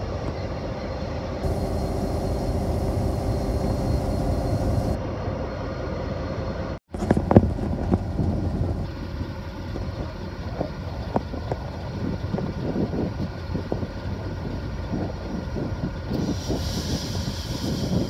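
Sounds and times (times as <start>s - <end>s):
diesel locomotive engine running: 0.0s - 18.0s
wind buffeting microphone: 6.9s - 18.0s.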